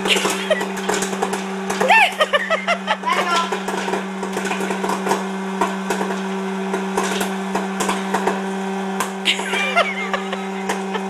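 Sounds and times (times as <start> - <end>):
popcorn kernels popping: 0.0 - 2.3, 3.4 - 9.3
fan motor hum: 0.0 - 11.0.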